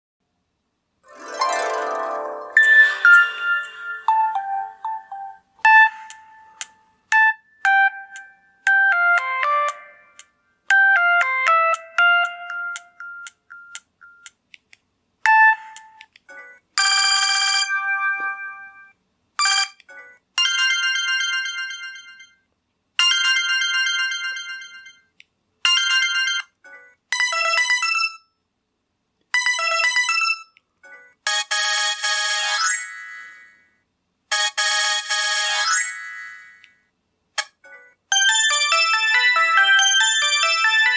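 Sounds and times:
short electronic ringtone melodies: 0:01.2 - 0:06.5
phone chiming notes: 0:02.3 - 0:06.6.

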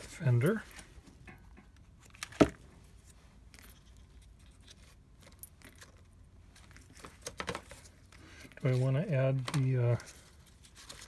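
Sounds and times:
paper rustling: 0:06.5 - 0:11.0.

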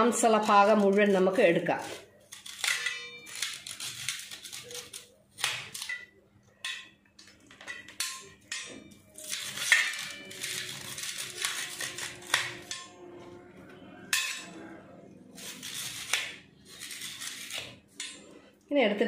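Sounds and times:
spoon scraping pods: 0:00.1 - 0:05.9, 0:09.1 - 0:12.8, 0:15.2 - 0:18.4
spoon clinking on metal plate: 0:02.6 - 0:03.8, 0:05.8 - 0:13.0, 0:14.1 - 0:14.6.

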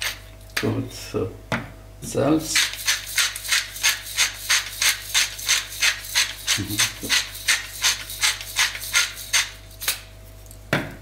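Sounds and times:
salt mill grinding: 0:02.6 - 0:10.0.

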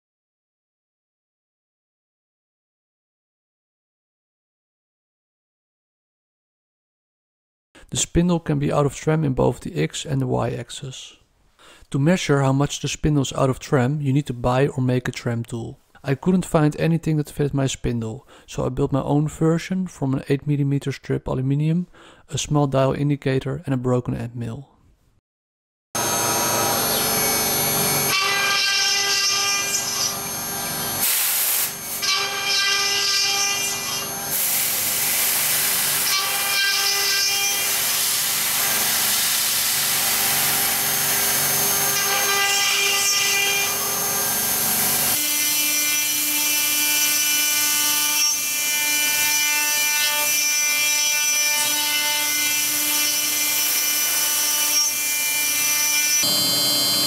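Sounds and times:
high spindle whine: 0:26.0 - 0:28.6, 0:29.6 - 0:31.0, 0:56.2 - 0:57.0
scraping of metal cutting: 0:26.0 - 0:36.5.

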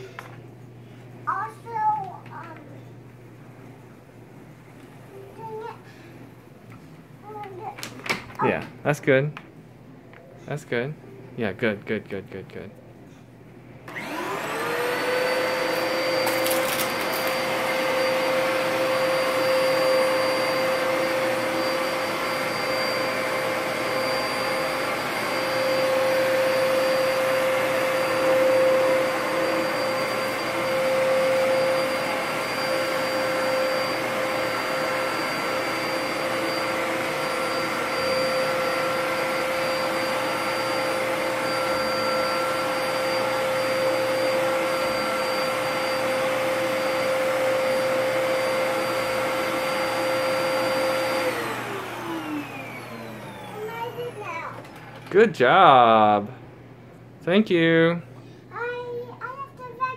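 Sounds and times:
vacuum cleaner motor whine: 0:13.8 - 0:56.3.

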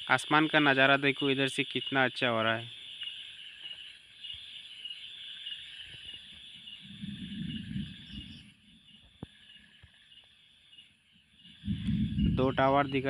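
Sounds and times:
insects chirping: 0:00.0 - 0:13.0
low rumble: 0:11.7 - 0:13.0.

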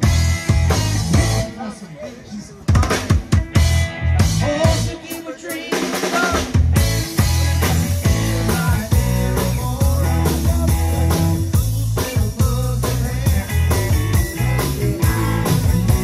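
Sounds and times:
live rock band playing: 0:00.0 - 0:16.0.

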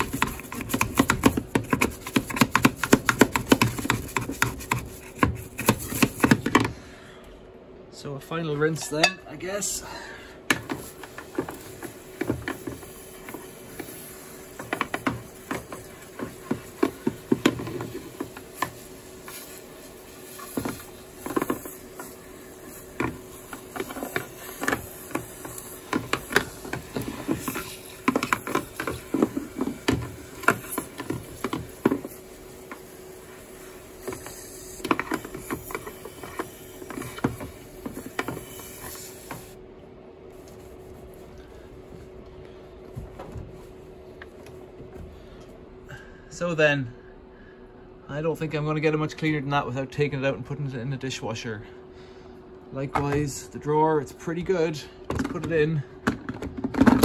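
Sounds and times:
clicks and taps on plastic: 0:00.0 - 0:06.7
water spray hissing: 0:10.7 - 0:39.6.

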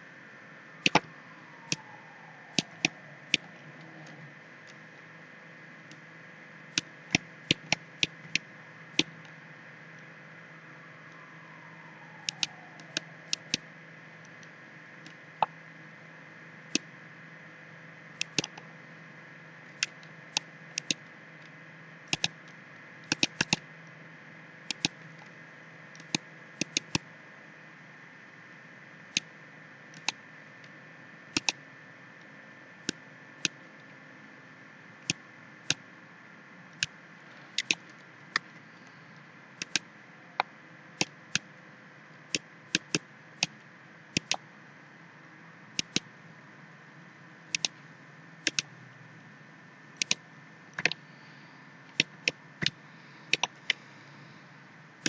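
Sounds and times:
faint hum and hiss: 0:00.0 - 0:55.0
computer mouse clicks: 0:00.8 - 0:01.1, 0:01.7 - 0:01.9, 0:02.5 - 0:04.8, 0:12.2 - 0:13.6, 0:18.2 - 0:18.6, 0:19.8 - 0:21.0, 0:22.1 - 0:23.6, 0:24.7 - 0:25.0, 0:26.0 - 0:27.0, 0:30.0 - 0:30.2, 0:31.3 - 0:31.6, 0:37.5 - 0:38.5, 0:39.6 - 0:41.4, 0:42.3 - 0:43.6, 0:44.2 - 0:44.4, 0:45.8 - 0:46.1, 0:47.5 - 0:47.8, 0:48.4 - 0:48.7, 0:50.0 - 0:50.2, 0:51.9 - 0:53.8.

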